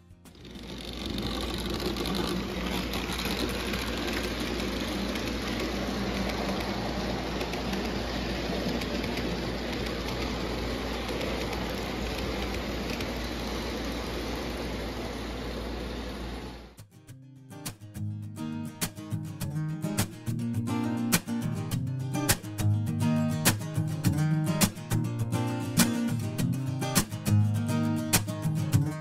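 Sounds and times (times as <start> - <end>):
model train rumbling on track: 0.3 - 16.7.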